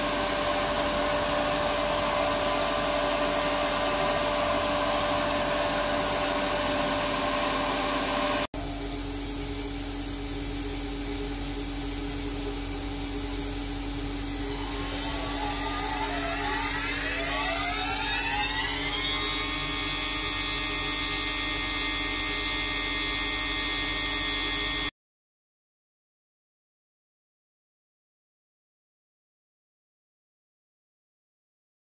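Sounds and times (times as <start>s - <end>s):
grinding machine hum: 0.0s - 24.9s
spindle whine: 0.0s - 24.9s.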